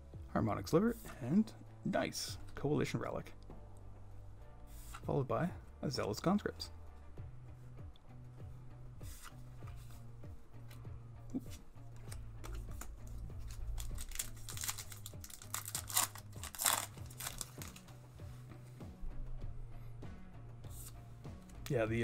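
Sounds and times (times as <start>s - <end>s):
background music with bass line: 0.0s - 22.0s
wrapper crinkling and tearing: 12.4s - 17.9s.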